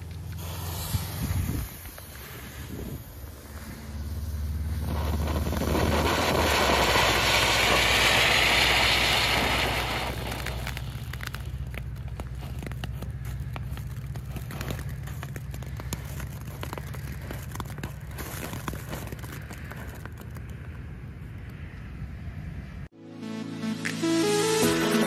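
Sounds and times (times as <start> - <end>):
firework fountain hissing: 0.0 - 11.6
sparks crackling: 0.0 - 20.3.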